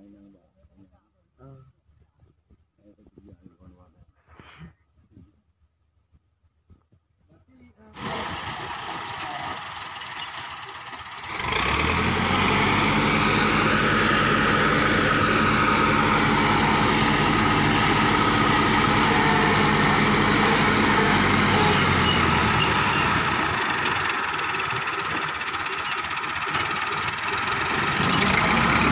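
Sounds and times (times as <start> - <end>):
rotary tiller cutting soil: 8.0 - 10.2, 10.8 - 25.7, 26.4 - 28.9
tractor diesel engine under load: 8.0 - 28.9.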